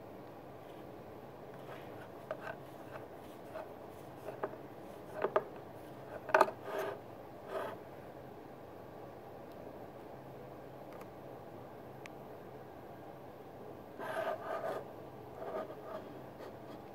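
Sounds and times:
knocks and scrapes: 0:01.6 - 0:07.8.

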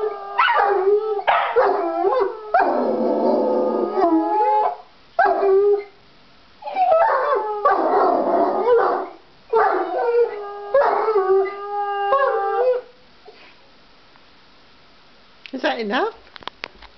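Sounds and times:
dogs howling: 0:00.0 - 0:05.9, 0:06.6 - 0:12.9.

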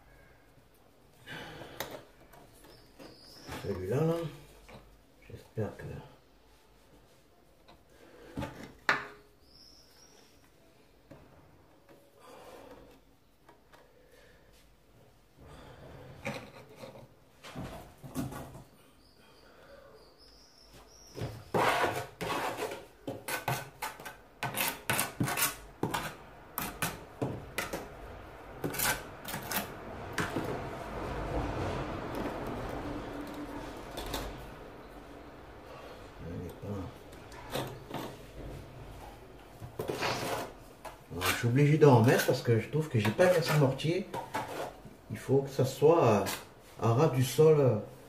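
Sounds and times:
tile knocking and scraping: 0:21.1 - 0:27.9, 0:28.6 - 0:30.7.

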